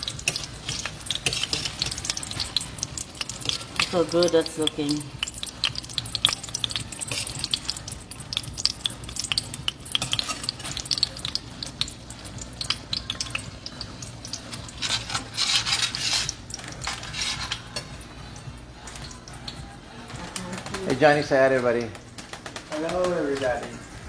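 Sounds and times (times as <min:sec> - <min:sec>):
metal spoon scraping a pan: 0:00.0 - 0:07.8, 0:09.2 - 0:11.4, 0:12.2 - 0:18.0
curry simmering: 0:00.0 - 0:21.8.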